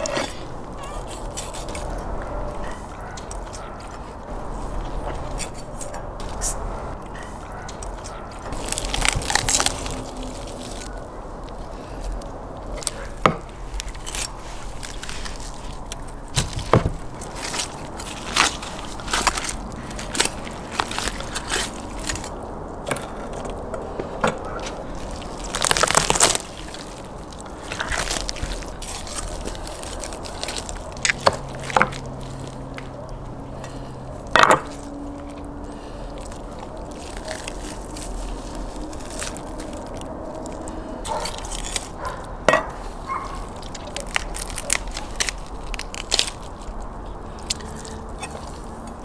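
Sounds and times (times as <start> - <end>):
meat cracking as torn apart: 7.7 - 23.6, 24.6 - 33.9, 34.6 - 42.2, 43.2 - 49.0.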